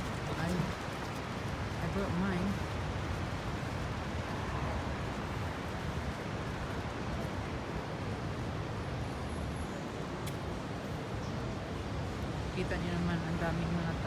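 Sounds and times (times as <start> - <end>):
busy street noise: 0.0 - 14.0.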